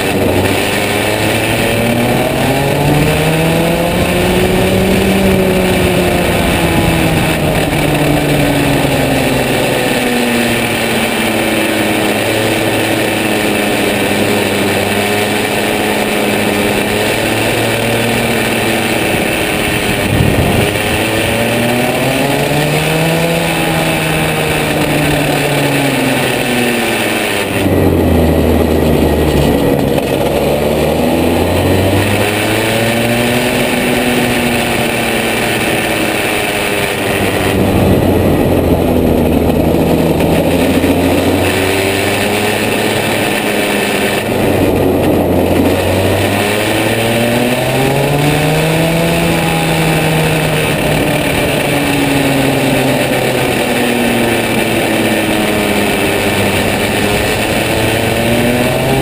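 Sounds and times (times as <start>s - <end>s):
kart engine revving: 0.0s - 59.0s.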